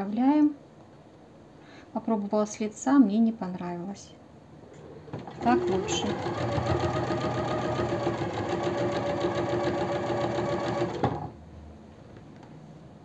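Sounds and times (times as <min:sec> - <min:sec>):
sewing machine running: 0:05.2 - 0:11.4.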